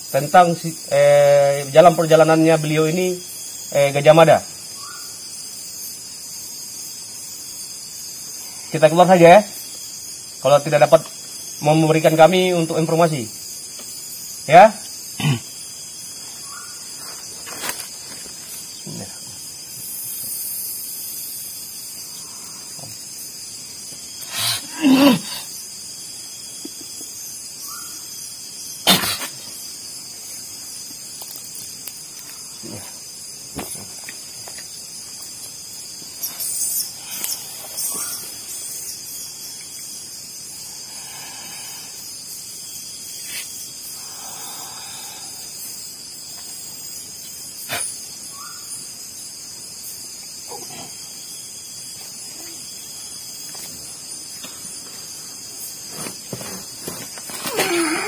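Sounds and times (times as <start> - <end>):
crickets chirring: 0.0 - 58.0.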